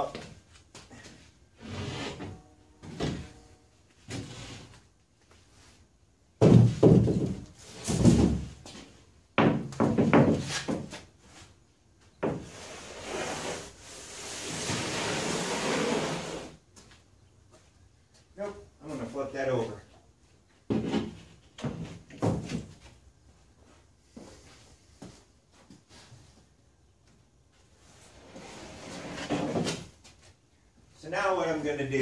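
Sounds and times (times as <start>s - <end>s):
plywood sheet knocking on frame: 6.4s - 8.4s, 9.4s - 10.9s
plywood sliding across wood: 12.3s - 16.5s.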